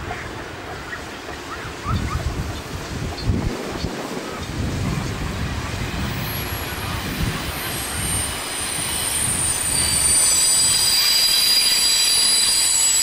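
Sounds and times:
steam train rumbling: 0.0 - 13.0
high wheel squeal: 6.1 - 13.0.

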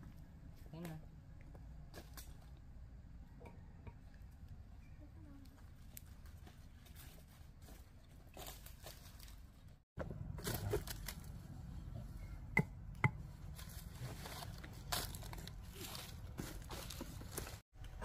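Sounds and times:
dry leaves rustling and scraping: 5.7 - 11.8, 13.4 - 17.6.

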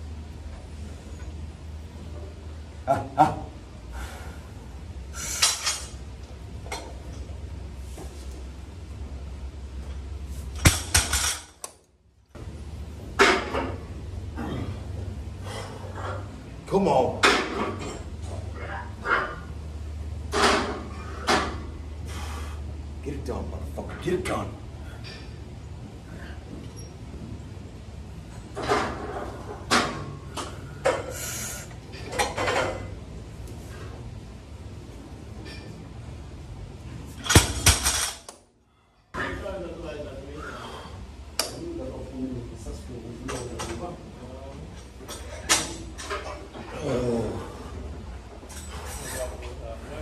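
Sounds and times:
barbell dropped on gym floor: 10.6 - 11.6, 37.2 - 38.3.

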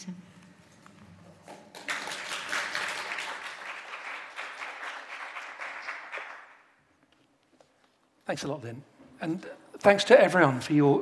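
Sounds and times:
audience applauding: 1.6 - 6.8.

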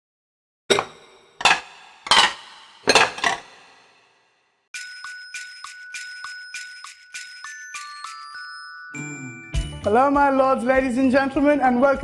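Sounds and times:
dishes clinking: 0.7 - 3.7
chiming bell-like music: 4.8 - 10.4.

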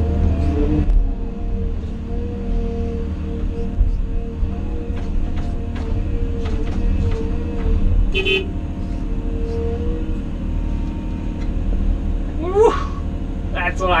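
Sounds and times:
excavator diesel engine running: 0.0 - 14.0
short horn toot: 8.2 - 8.5.

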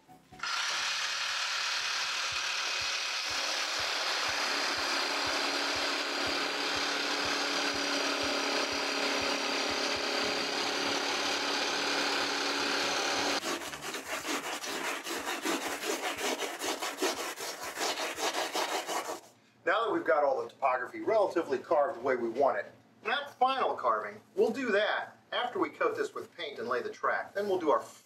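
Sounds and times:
power saw cutting foam board: 0.4 - 19.3
sanding strokes on foam: 13.2 - 19.3.

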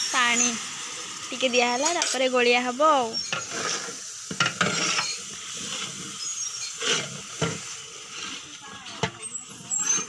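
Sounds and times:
metal ladle scraping pot: 3.1 - 10.0.

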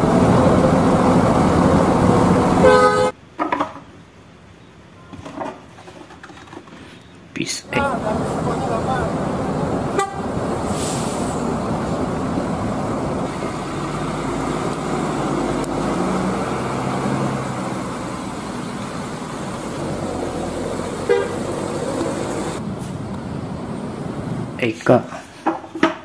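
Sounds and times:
buses driving past: 0.0 - 3.2, 7.5 - 25.4
road noise: 0.0 - 26.0
bus horn toots: 2.6 - 3.2, 9.9 - 10.3, 21.0 - 21.7.

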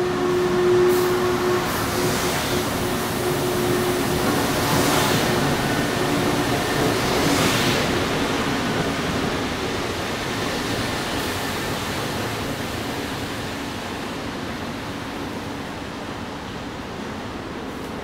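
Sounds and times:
train departing with steady rush: 0.0 - 18.0.

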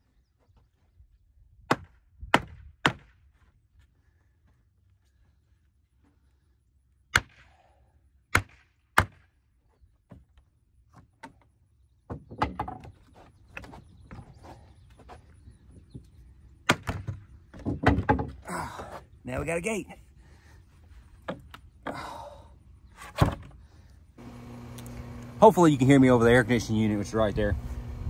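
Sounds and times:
wooden boards rattling: 12.1 - 14.6, 16.7 - 19.0, 23.0 - 23.6.

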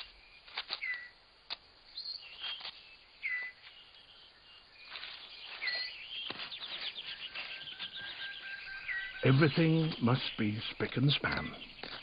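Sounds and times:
birds whistled chirps: 0.0 - 1.2, 1.9 - 12.0
rustling clicks: 0.0 - 1.7
faint insect hum: 0.0 - 12.0.

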